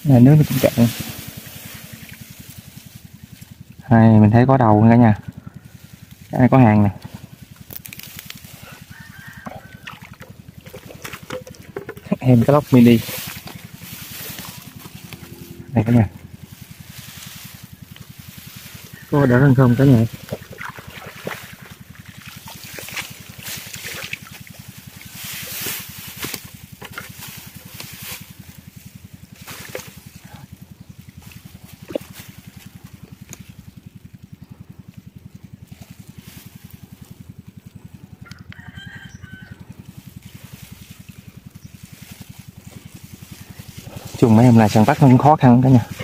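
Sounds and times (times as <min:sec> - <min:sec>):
small engine idling: 0:00.0 - 0:46.0
rooster crowing: 0:08.5 - 0:10.4, 0:18.8 - 0:20.4, 0:38.2 - 0:40.0
water trickling and splashing: 0:19.7 - 0:26.0.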